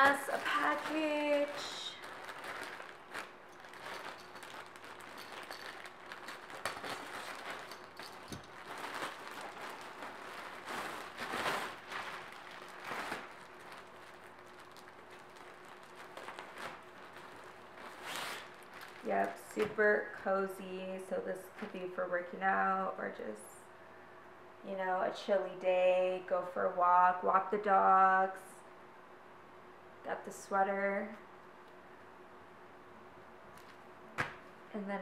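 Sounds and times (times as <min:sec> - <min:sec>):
plastic packaging rustling: 0:00.0 - 0:20.2.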